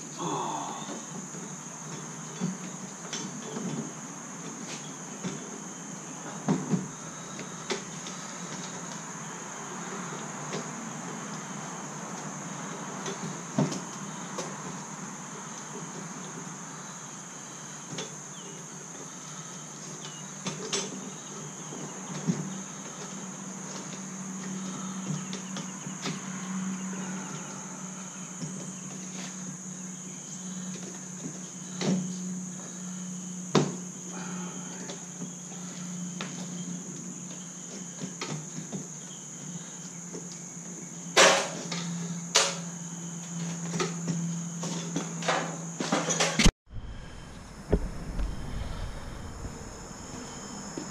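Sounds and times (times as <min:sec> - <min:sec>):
high insect buzz: 0:00.0 - 0:50.9
low hum: 0:46.7 - 0:50.9.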